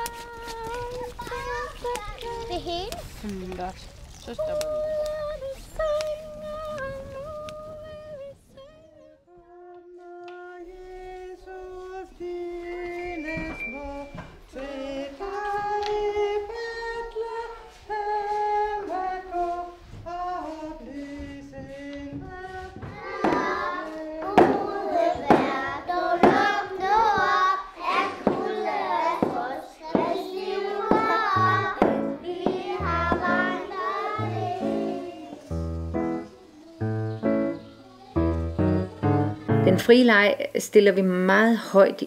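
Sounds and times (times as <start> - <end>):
children and woman singing: 0.0 - 3.2, 4.3 - 39.9
knocks: 22.1 - 23.6, 24.2 - 25.6.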